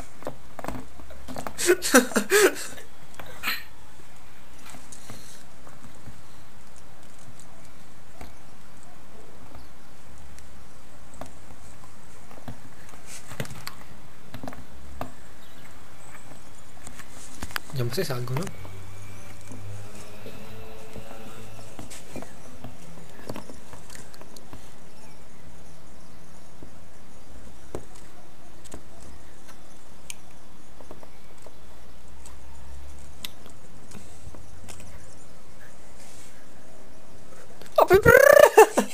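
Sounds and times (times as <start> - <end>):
steady low hum: 17.7 - 27.2.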